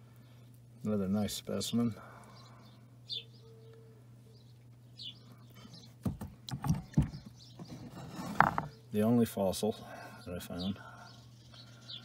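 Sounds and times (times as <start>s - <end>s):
faint bird chirps: 2.0s - 6.0s.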